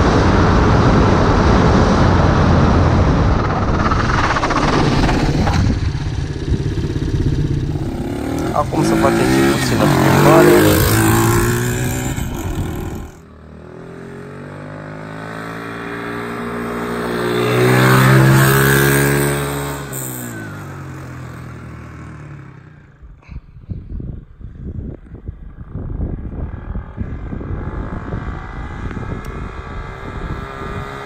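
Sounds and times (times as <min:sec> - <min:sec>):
atv passing by: 0:01.8 - 0:23.1
atv engine running: 0:02.8 - 0:23.8.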